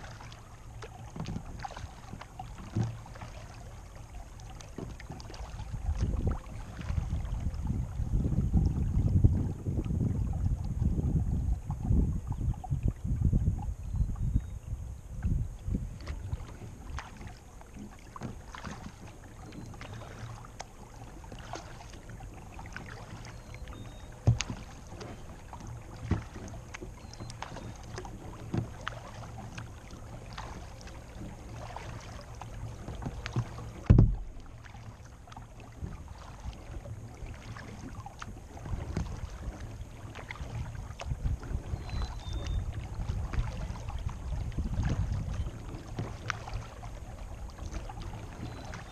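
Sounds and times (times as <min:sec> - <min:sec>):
paddle splashing water: 0:00.0 - 0:48.9
loud thump: 0:33.8 - 0:34.3.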